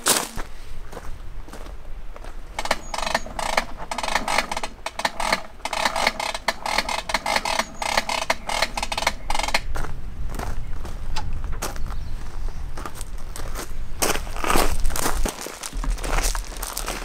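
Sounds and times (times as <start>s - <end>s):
hose reel clicking: 2.6s - 9.7s.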